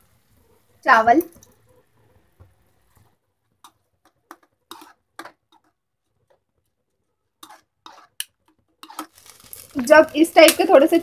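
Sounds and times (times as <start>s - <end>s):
metal spoon scraping a pan: 3.0s - 6.5s, 7.4s - 10.9s.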